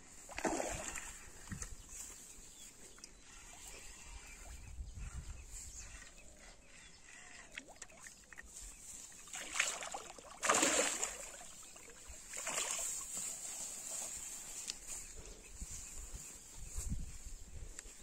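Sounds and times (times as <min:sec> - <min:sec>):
fish thrashing and splashing: 0:09.2 - 0:13.1.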